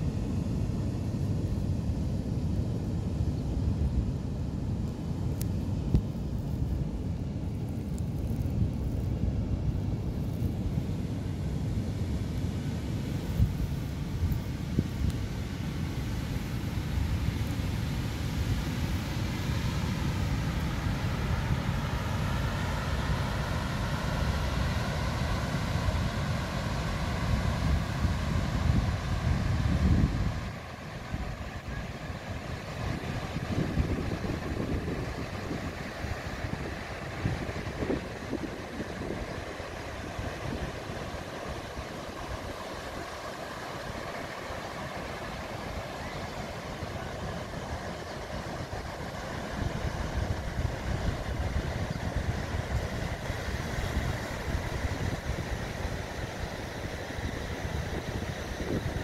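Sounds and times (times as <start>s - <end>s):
sea surf breaking on beach: 10.4s - 59.0s
wind buffeting microphone: 18.8s - 43.2s, 45.0s - 59.0s.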